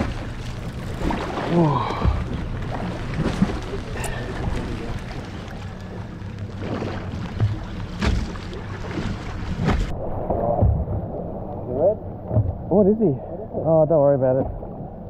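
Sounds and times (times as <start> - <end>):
boat motor humming: 0.0 - 15.0
sea noise: 0.0 - 15.0
wind: 0.0 - 15.0.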